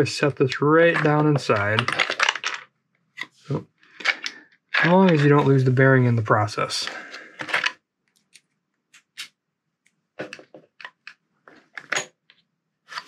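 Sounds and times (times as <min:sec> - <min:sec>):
small hard clicks of plastic parts: 0:09.8 - 0:12.5.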